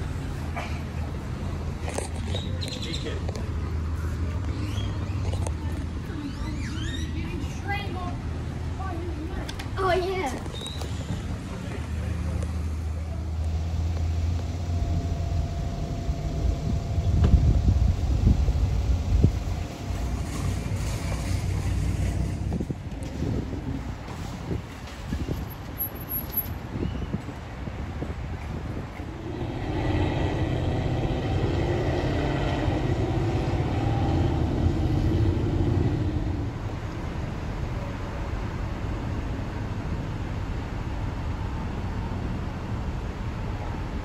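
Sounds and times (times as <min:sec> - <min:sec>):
vehicle hum: 0:00.0 - 0:44.0
wind rumbling on microphone: 0:13.4 - 0:44.0.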